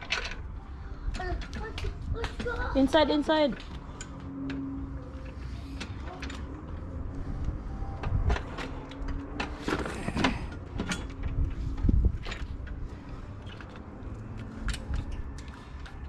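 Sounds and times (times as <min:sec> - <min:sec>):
objects clattering and knocking: 0:00.0 - 0:00.5, 0:08.0 - 0:16.0.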